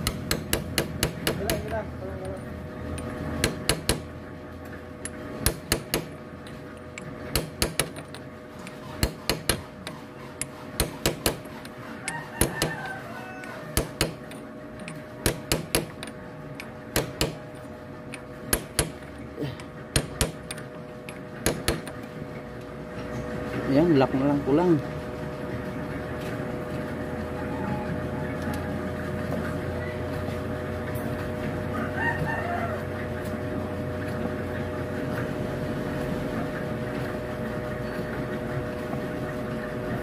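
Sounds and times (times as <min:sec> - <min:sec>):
hammer knocking on metal tube: 0:00.0 - 0:01.8.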